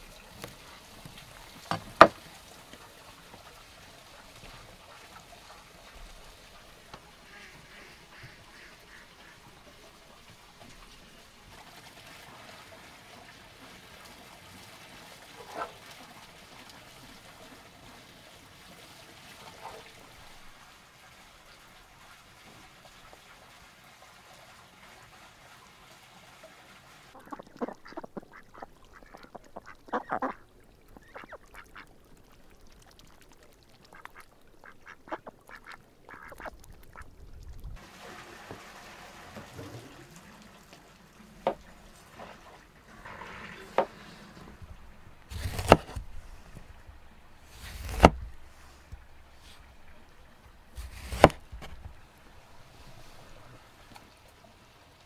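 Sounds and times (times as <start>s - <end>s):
ducks quacking: 7.2s - 9.5s, 27.2s - 31.9s, 33.9s - 37.1s
knife chopping on wooden board: 45.3s - 46.0s, 47.7s - 48.2s, 50.8s - 51.4s.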